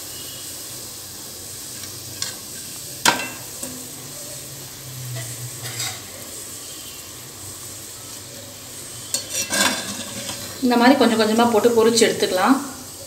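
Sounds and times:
hot oil sizzling: 0.0 - 13.0
metal skimmer clinking on pan: 9.1 - 10.5.

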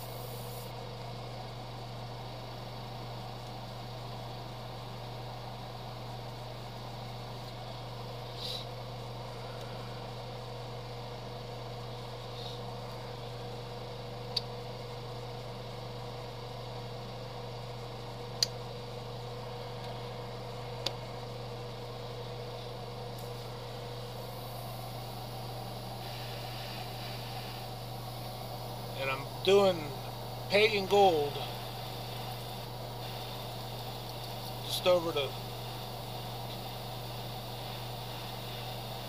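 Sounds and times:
electric motor humming: 0.0 - 0.7, 23.0 - 39.0.

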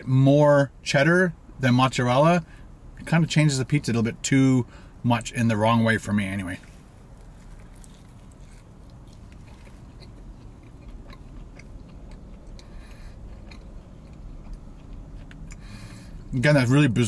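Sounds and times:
steady low hum: 0.0 - 17.0
man chewing crunchy pizza: 6.6 - 16.4.

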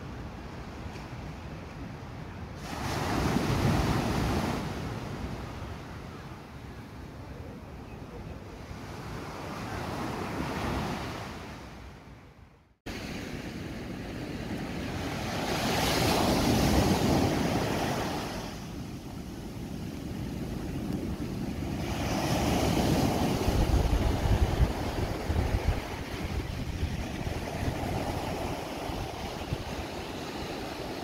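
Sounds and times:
small waves breaking on sand: 2.6 - 5.9, 12.9 - 31.0
wind rumbling on microphone: 12.9 - 31.0.

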